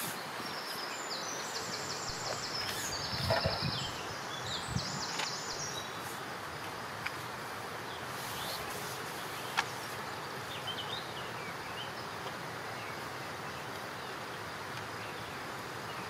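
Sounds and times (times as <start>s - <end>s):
outdoor background hiss: 0.0s - 16.0s
songbird trilling: 0.4s - 6.1s.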